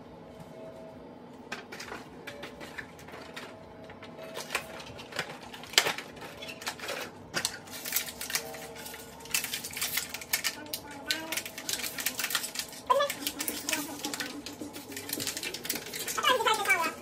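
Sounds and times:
plastic packaging crinkling: 0:04.3 - 0:17.0.

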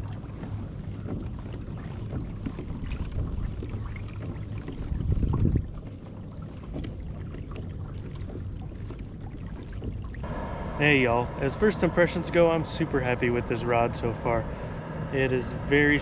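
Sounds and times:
light knocks from boat: 0:00.0 - 0:10.3
wind rumble on microphone: 0:00.0 - 0:16.0.

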